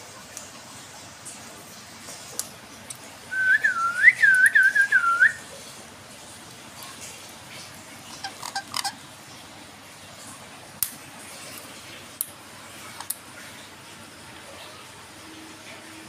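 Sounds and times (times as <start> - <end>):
person whistling: 3.4 - 5.4.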